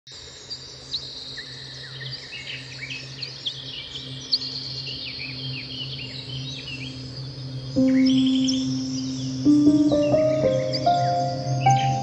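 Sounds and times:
birds chirping: 3.8s - 12.0s.

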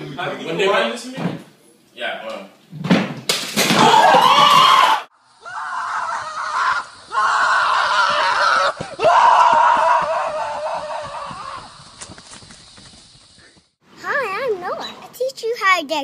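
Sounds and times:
loud shout: 3.8s - 11.7s
man screaming: 3.8s - 11.7s.

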